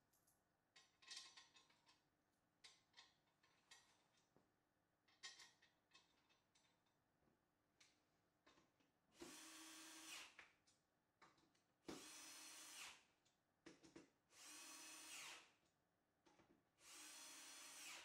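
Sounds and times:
cordless drill driving screws: 0:09.2 - 0:10.4, 0:11.9 - 0:13.0, 0:14.4 - 0:15.5, 0:16.8 - 0:18.0.

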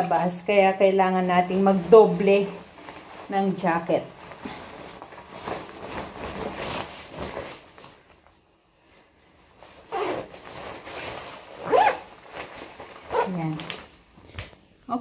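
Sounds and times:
fabric rustling: 0:00.0 - 0:14.2
zipper being pulled: 0:09.8 - 0:13.7.

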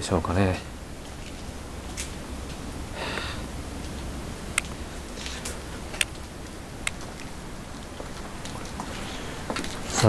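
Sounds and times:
breathy rustle: 0:02.9 - 0:03.5, 0:05.1 - 0:05.7, 0:08.9 - 0:09.5.

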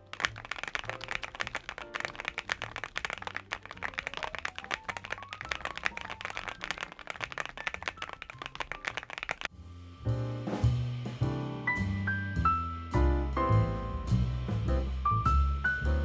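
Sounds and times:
mechanical keyboard typing: 0:00.0 - 0:09.5.

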